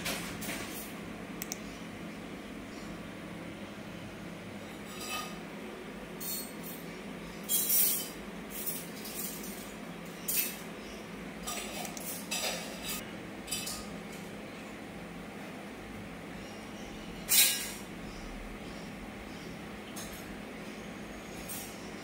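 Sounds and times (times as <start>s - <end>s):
steady low hum: 0.0s - 22.0s
laptop keys clicking: 1.4s - 1.6s.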